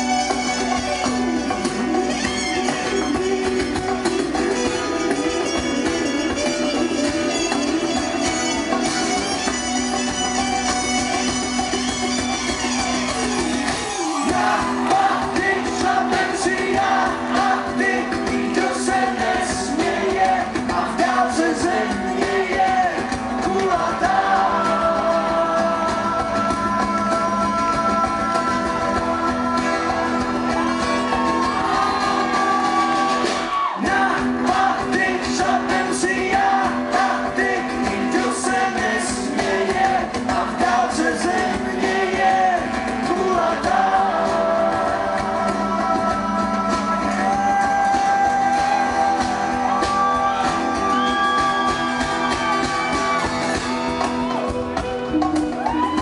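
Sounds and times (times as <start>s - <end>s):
strummed acoustic guitars: 0.0s - 56.0s
man singing: 0.9s - 9.2s, 14.3s - 31.0s, 33.6s - 51.4s.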